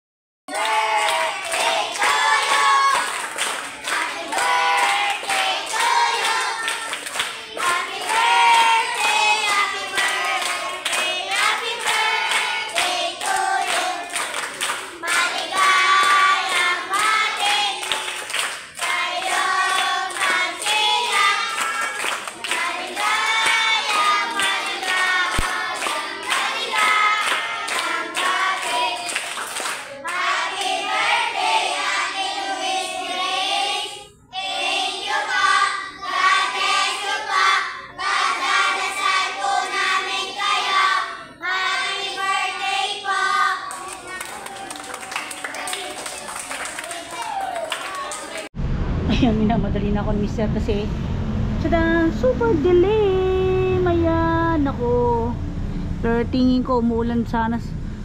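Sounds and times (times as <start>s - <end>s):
children singing: 0.5s - 18.2s, 18.8s - 29.1s, 30.0s - 44.5s
children clapping: 0.5s - 31.0s, 42.1s - 48.5s.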